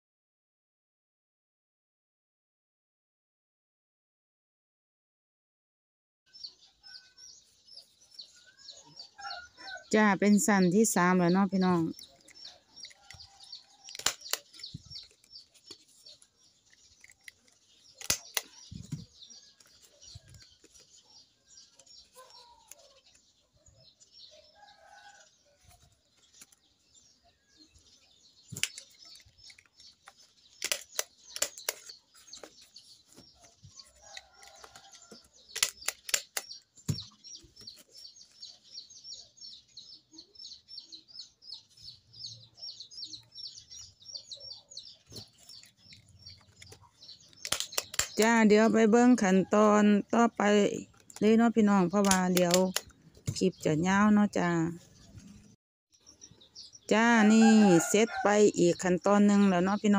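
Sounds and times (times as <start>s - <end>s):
stapler clicking: 13.8s - 15.2s, 17.0s - 18.6s, 35.6s - 36.6s, 47.4s - 48.2s.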